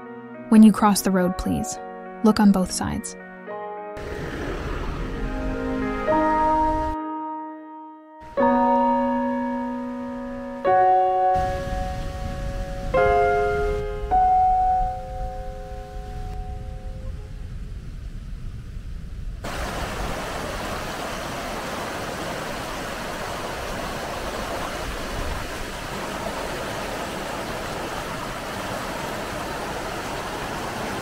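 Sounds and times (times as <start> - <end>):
low rumble: 4.0 - 7.0, 15.0 - 19.5
waterfall roaring: 4.0 - 7.0, 11.4 - 12.2, 19.4 - 31.0.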